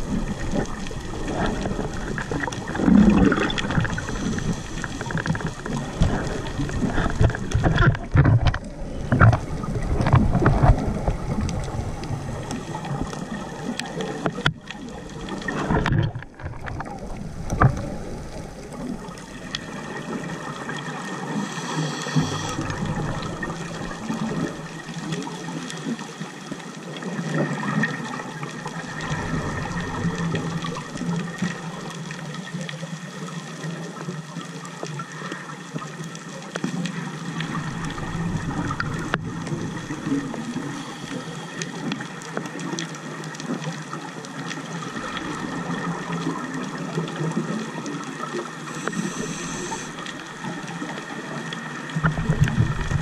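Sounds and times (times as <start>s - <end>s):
underwater water gurgling: 0.0s - 53.0s
faint steady hum: 8.6s - 26.2s, 36.9s - 43.5s, 47.7s - 53.0s.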